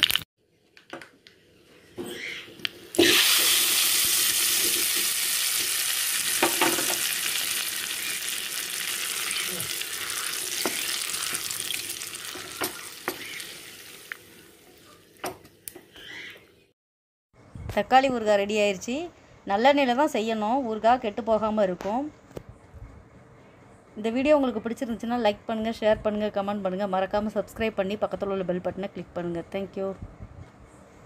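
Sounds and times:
hot oil sizzling: 0.0s - 0.2s, 2.6s - 14.8s.

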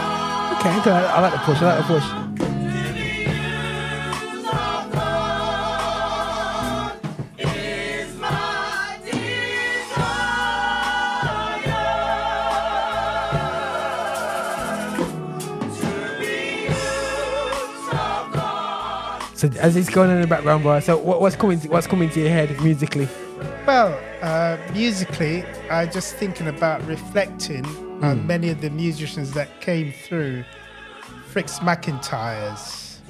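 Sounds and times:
band accompaniment: 0.0s - 29.5s
gospel choir singing: 0.0s - 33.0s
steady bass line: 28.0s - 28.7s.

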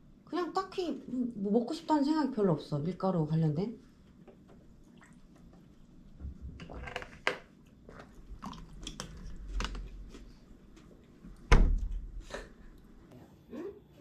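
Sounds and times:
soft chewing and crunching: 3.9s - 11.5s.

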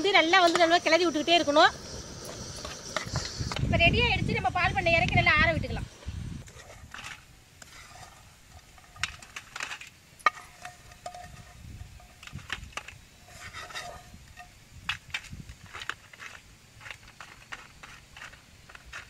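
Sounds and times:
ladle clinking on steel plate: 10.3s - 12.3s.

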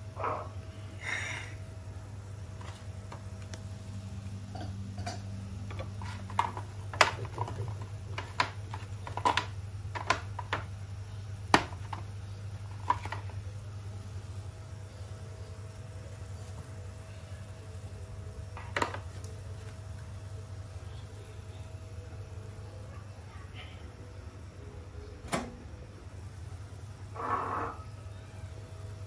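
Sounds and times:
plastic jars clicking: 5.0s - 10.7s, 12.7s - 13.3s.

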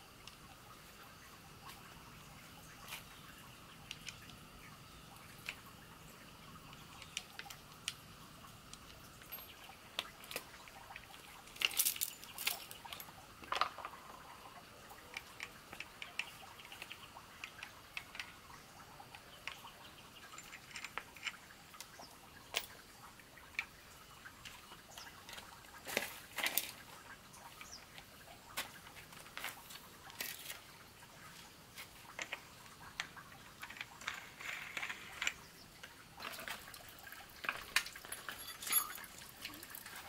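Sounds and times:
metal tool parts clattering: 9.3s - 9.6s, 37.7s - 40.0s.

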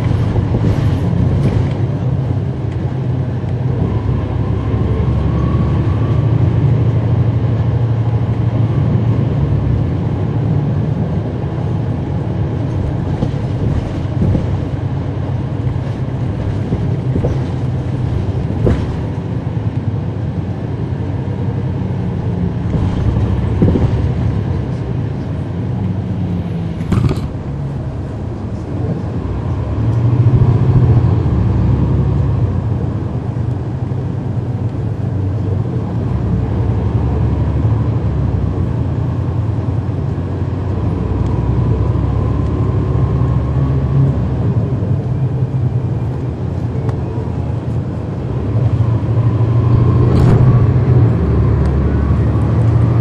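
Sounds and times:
bus diesel engine drone: 0.0s - 53.0s.

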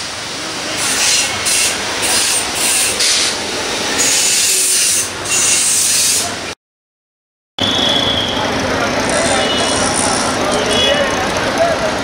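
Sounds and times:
traffic rumble: 7.6s - 12.0s.

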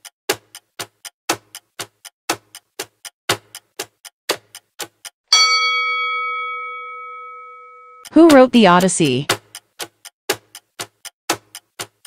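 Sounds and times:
clock-like ticking: 0.0s - 12.0s
bright bell chime: 5.3s - 8.1s.

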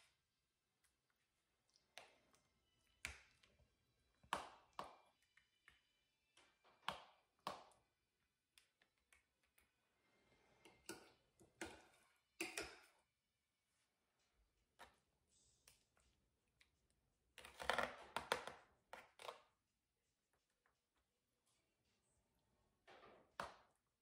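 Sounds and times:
spoon tapping bowl and pan: 12.4s - 12.9s.

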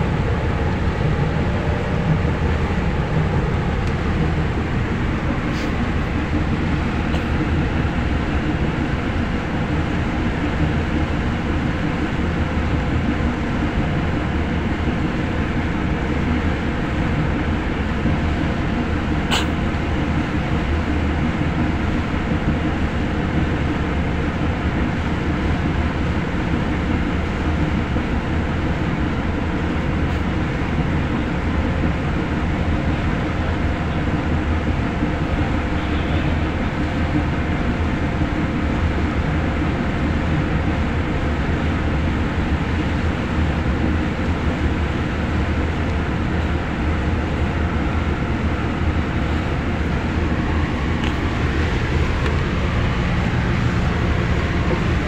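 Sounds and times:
boat diesel engine rumbling: 0.0s - 55.0s
wind: 0.0s - 55.0s.

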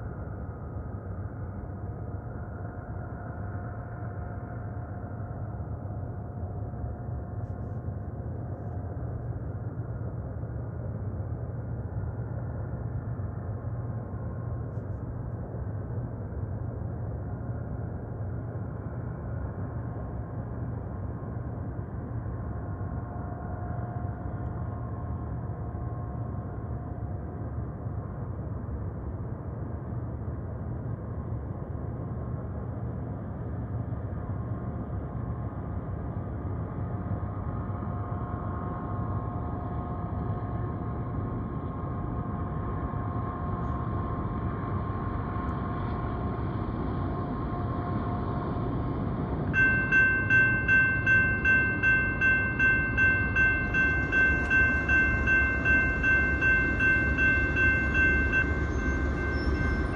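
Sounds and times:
freight train rumble: 35.4s - 59.9s
crossing bells ringing: 49.6s - 59.9s.

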